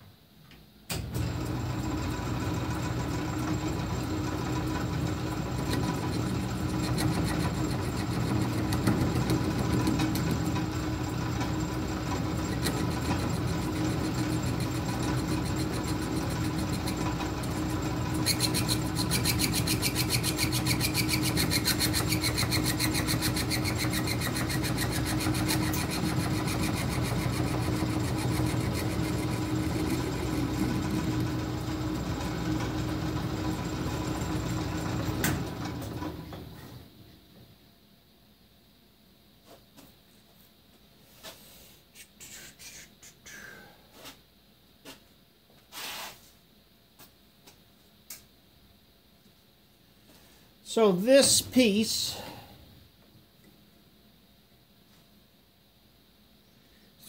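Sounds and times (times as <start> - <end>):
lathe motor hum: 1.0 - 36.6
cutting tool scraping metal: 5.6 - 10.4, 12.3 - 30.2.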